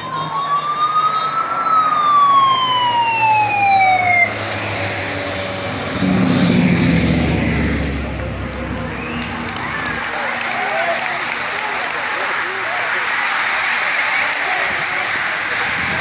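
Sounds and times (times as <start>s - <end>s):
emergency siren wailing: 0.0s - 12.0s
motorcycle engines passing: 0.4s - 10.4s.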